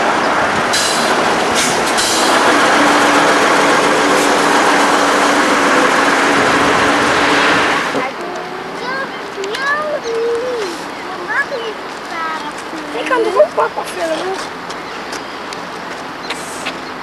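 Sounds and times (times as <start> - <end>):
short air hisses: 0.8 - 2.3, 16.3 - 16.8.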